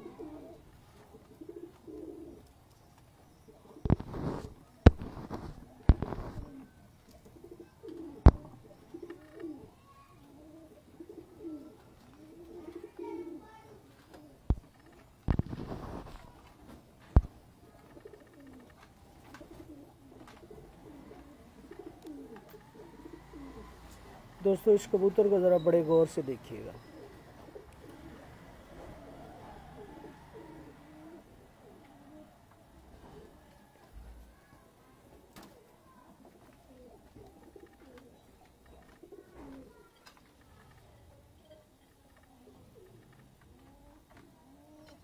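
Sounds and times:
pigeons cooing: 0.0s - 2.6s, 3.3s - 45.0s.

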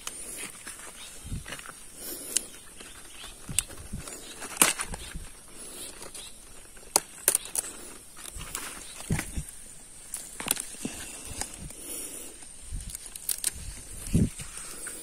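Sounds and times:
footsteps on dry soil: 0.0s - 6.8s
leaves rustling: 0.0s - 15.0s
cabbage stalks snapping: 6.0s - 11.8s, 12.8s - 14.8s.

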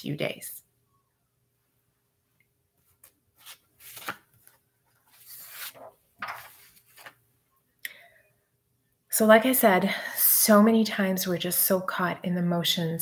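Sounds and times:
paper rustling: 2.8s - 7.2s.

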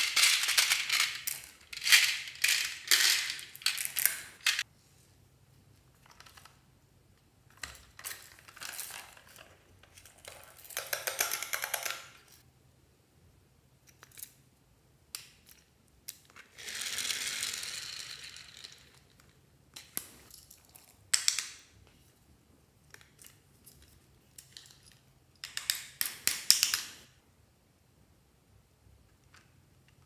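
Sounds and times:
plastic toys clicking and rattling: 0.0s - 4.6s, 7.5s - 12.4s, 16.1s - 19.3s.

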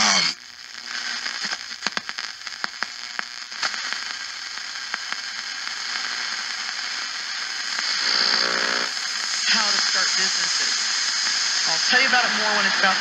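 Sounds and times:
radio static hiss: 0.0s - 13.0s
sharp radio crackles: 0.0s - 13.0s
radio station broadcast: 5.8s - 13.0s.

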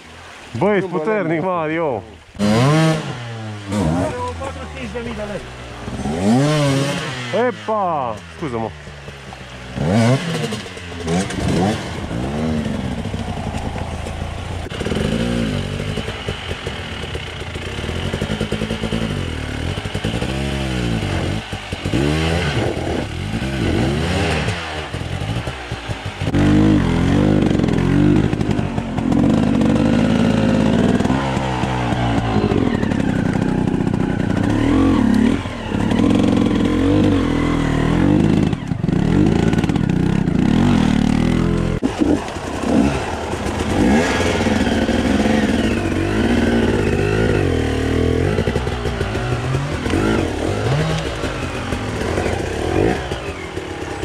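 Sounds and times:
motorcycle engine revving: 2.2s - 54.0s.

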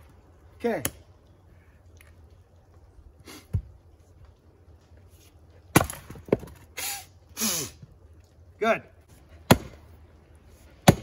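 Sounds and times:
axe chopping firewood: 5.7s - 6.6s, 9.4s - 9.9s, 10.8s - 11.0s.

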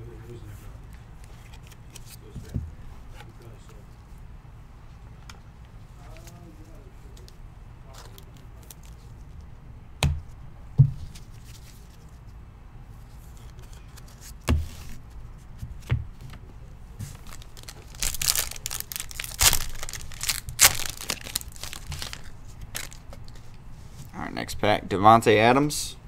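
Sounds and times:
foil wrapper crinkling and tearing: 17.2s - 23.1s.

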